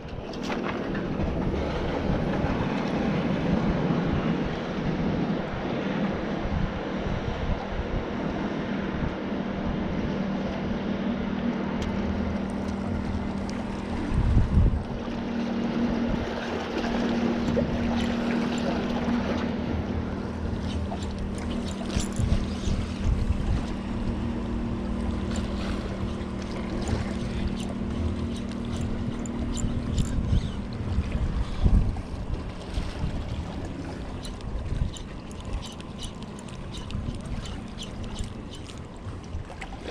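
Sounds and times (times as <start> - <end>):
motorboat engine drone: 0.0 - 39.9
wind buffeting microphone: 0.0 - 39.9.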